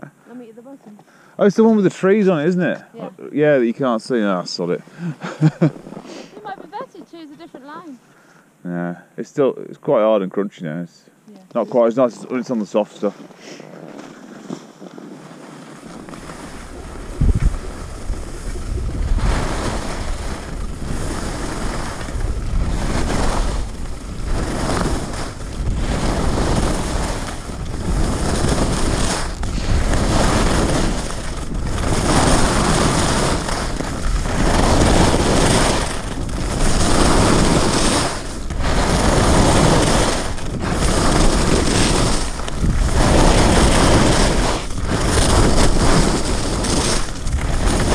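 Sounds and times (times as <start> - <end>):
skis scraping over crunchy snow: 3.8 - 8.0, 11.6 - 47.9
wind rushing over microphone: 15.8 - 47.9.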